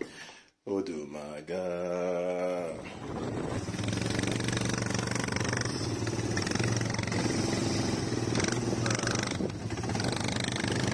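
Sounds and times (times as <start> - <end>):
quad bike engine running: 3.2 - 10.9.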